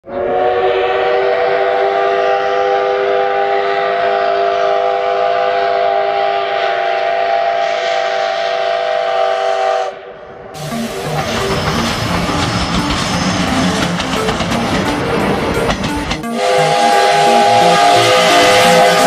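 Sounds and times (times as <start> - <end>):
steam locomotive whistle: 0.0 - 13.8, 16.2 - 19.0.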